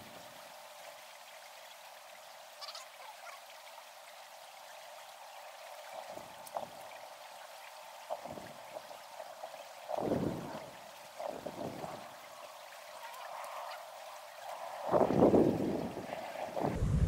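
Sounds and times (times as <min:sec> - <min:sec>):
faint outdoor hiss: 0:00.0 - 0:17.0
soft low thumps: 0:16.6 - 0:17.0.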